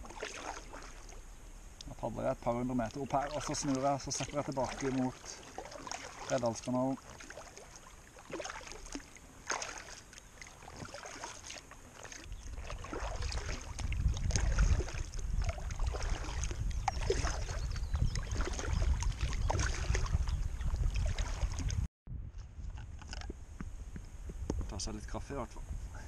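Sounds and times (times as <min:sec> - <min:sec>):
kayak paddle splashes: 0:00.0 - 0:01.3, 0:02.5 - 0:21.8
water dripping off paddle: 0:02.8 - 0:20.1
wind buffeting microphone: 0:12.2 - 0:26.0.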